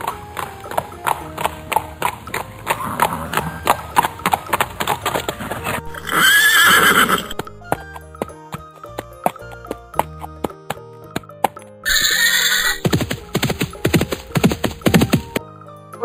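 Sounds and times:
horses galloping hoofbeats: 0:00.0 - 0:15.4
background music: 0:00.0 - 0:16.0
horse whinny: 0:05.4 - 0:07.4, 0:11.9 - 0:12.8.

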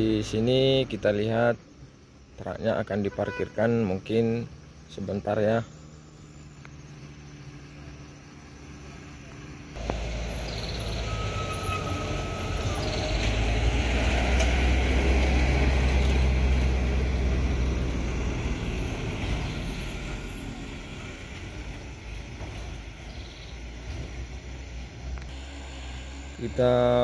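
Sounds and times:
trucks driving past: 0:04.0 - 0:27.0
high-pitched squeal: 0:09.8 - 0:14.7, 0:17.2 - 0:21.8, 0:25.3 - 0:27.0.

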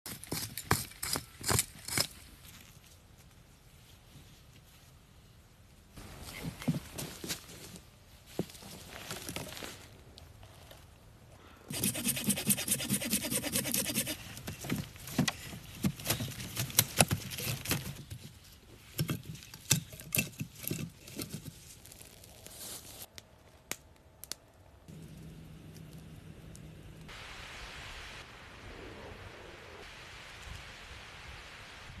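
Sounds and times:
hand saw cutting wood: 0:11.7 - 0:14.7.

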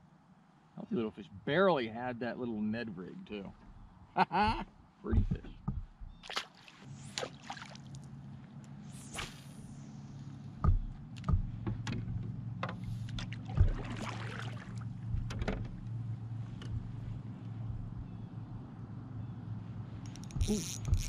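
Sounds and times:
low hum: 0:06.8 - 0:21.0
fishing rod swishing: 0:08.9 - 0:10.0
knocks against kayak hull: 0:10.6 - 0:14.2.

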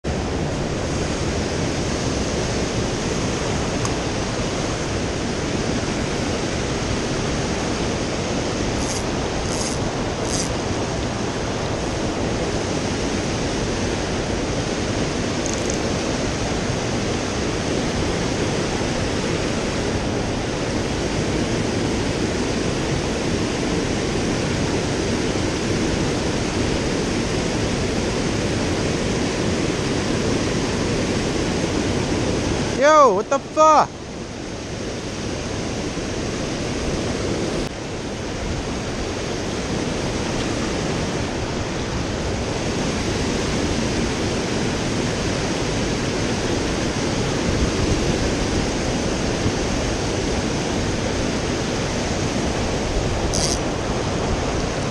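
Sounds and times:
stream rushing over rocks: 0:00.1 - 0:54.9.

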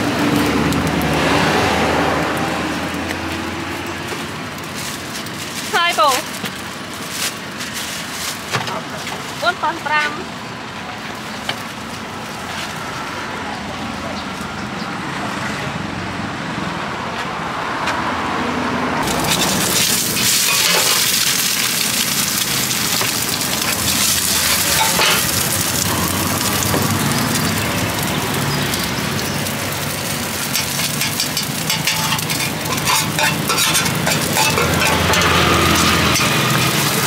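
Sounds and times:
street traffic: 0:00.0 - 0:37.0
metal utensils scraping a pan: 0:19.0 - 0:21.6, 0:22.3 - 0:25.9, 0:30.4 - 0:37.0
egg sizzling in a pan: 0:19.0 - 0:37.0.

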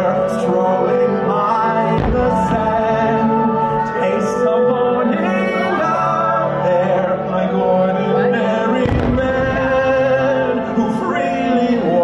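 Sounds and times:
orchestral music with singing: 0:00.0 - 0:12.0
firework low boom: 0:02.0 - 0:03.0, 0:08.8 - 0:09.9.

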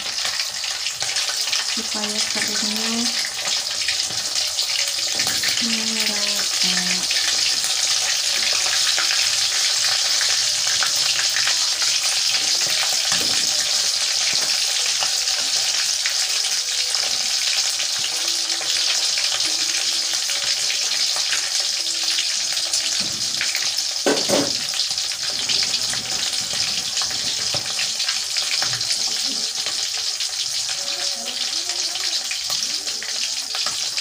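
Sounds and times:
chicken deep-frying in oil: 0:00.0 - 0:34.0.

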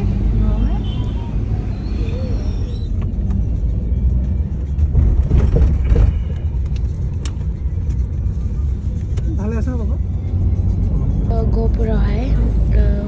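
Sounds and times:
car road rumble in cabin: 0:00.0 - 0:13.0.

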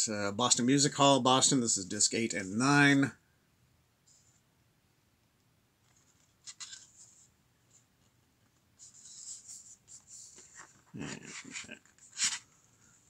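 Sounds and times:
cd scraping out of cardboard sleeve: 0:10.5 - 0:12.5.

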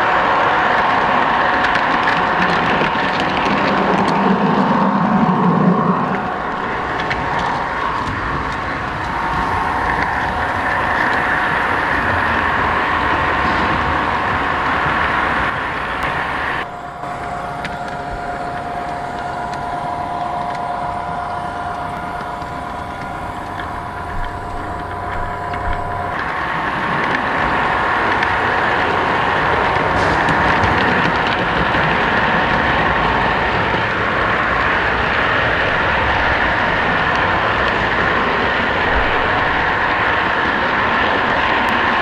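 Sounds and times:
model train running on track: 0:00.0 - 0:42.0
steady hum: 0:00.0 - 0:42.0.

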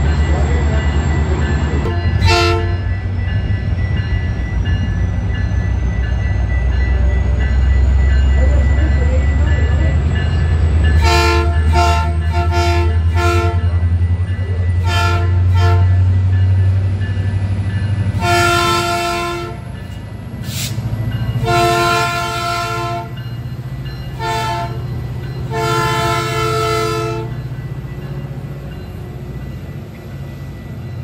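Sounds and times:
locomotive horn blasts: 0:01.9 - 0:02.8, 0:11.0 - 0:13.7, 0:14.8 - 0:16.0, 0:18.2 - 0:19.6, 0:21.4 - 0:23.2, 0:24.2 - 0:24.8, 0:25.5 - 0:27.4.

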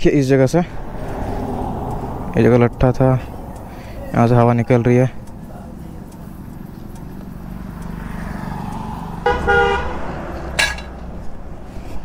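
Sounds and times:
air hissing from tyre: 0:00.7 - 0:04.1
vehicle horn toot: 0:09.2 - 0:10.1.

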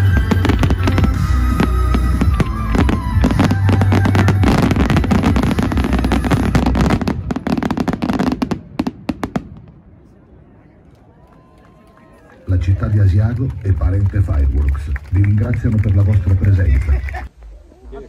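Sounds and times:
fireworks bangs and crackles: 0:00.0 - 0:10.0.

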